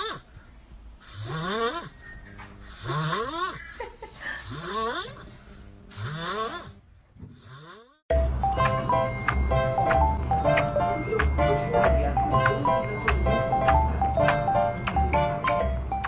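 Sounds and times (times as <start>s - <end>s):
music: 8.1s - 16.0s.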